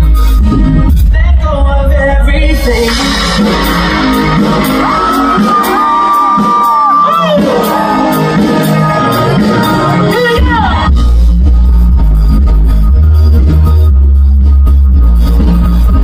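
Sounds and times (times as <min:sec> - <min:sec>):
live pop music over pa: 0:00.0 - 0:16.0
crowd shouts and whoops: 0:03.5 - 0:11.0.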